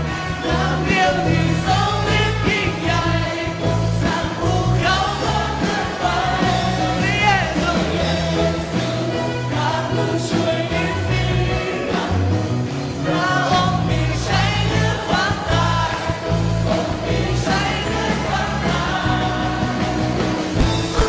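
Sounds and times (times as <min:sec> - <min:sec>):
bass: 0:00.0 - 0:21.0
drums: 0:00.0 - 0:21.0
guitar: 0:00.0 - 0:21.0
man singing into a microphone: 0:00.4 - 0:12.2.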